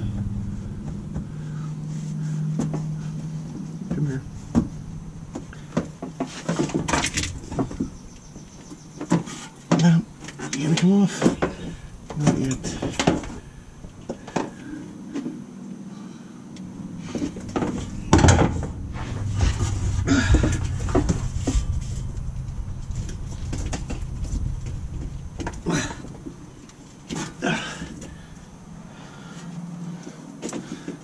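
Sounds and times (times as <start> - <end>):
low rumble: 0.0 - 9.1, 10.0 - 29.6.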